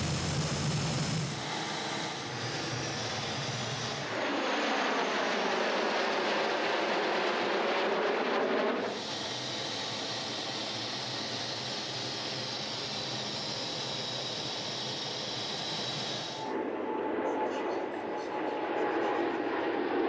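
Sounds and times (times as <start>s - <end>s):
thin high whine: 0.0s - 4.3s, 8.8s - 16.5s
cockpit air and engine rushing: 0.0s - 16.6s
jet fighters roaring past: 0.0s - 20.0s.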